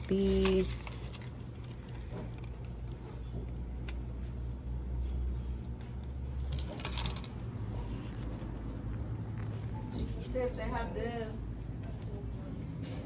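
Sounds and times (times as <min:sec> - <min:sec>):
low hum of room tone: 0:00.0 - 0:13.0.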